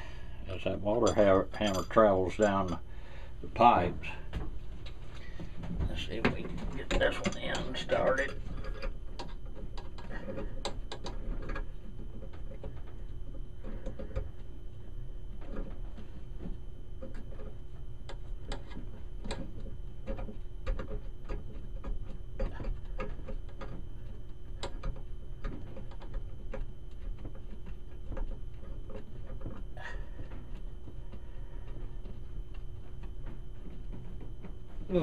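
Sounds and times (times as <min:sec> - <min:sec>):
steady low hum: 0:00.0 - 0:35.0
metal fittings clicking and scraping: 0:00.9 - 0:02.8.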